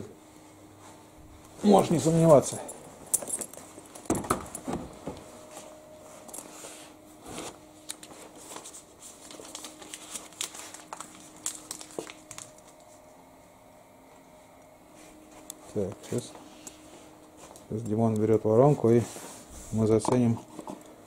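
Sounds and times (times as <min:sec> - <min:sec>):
faint steady hum: 0:00.0 - 0:21.0
crinkling and rustling: 0:07.2 - 0:13.0.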